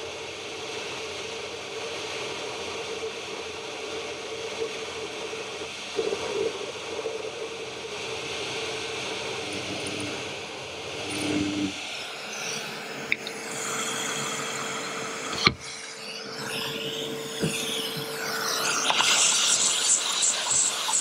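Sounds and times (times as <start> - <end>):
drill motor hum: 8.3 - 21.0
drill bit scraping metal: 9.4 - 10.3, 11.0 - 12.8.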